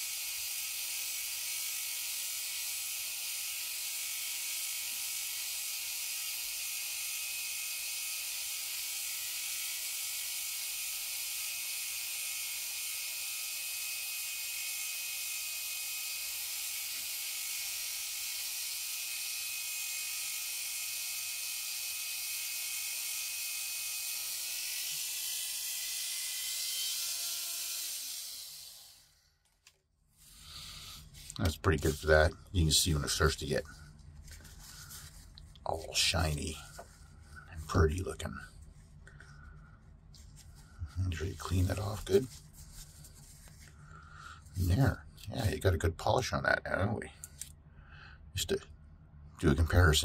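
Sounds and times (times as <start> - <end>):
rotary tool whining: 0.0 - 30.4.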